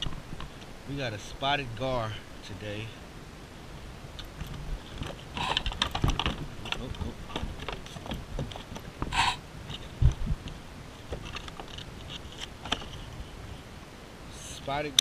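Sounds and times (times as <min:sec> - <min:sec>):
clicks and knocks on kayak: 0:04.2 - 0:10.2
short rushes of noise: 0:09.1 - 0:09.4.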